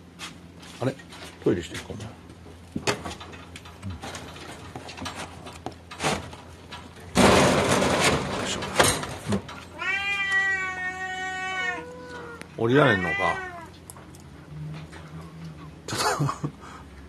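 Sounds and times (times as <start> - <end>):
cat meowing: 9.7 - 13.8.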